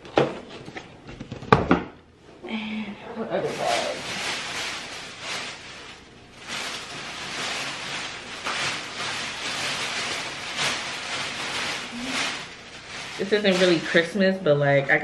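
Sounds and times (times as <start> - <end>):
plastic bag rustling: 3.2 - 15.0.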